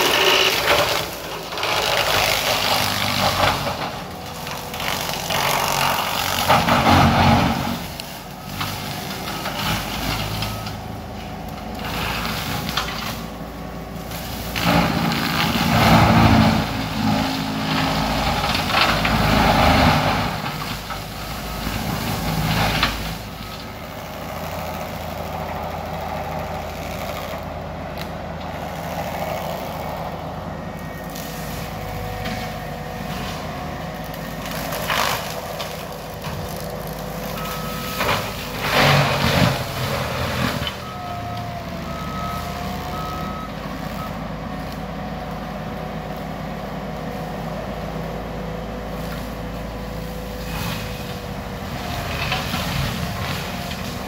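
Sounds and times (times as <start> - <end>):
diesel engine under load: 0.0 - 54.0
brush cutter chewing through brush: 30.8 - 40.8.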